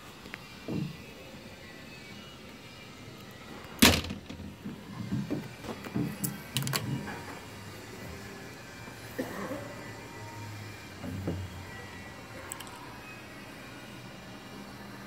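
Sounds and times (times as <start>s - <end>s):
boat door banging shut: 3.8s - 4.5s.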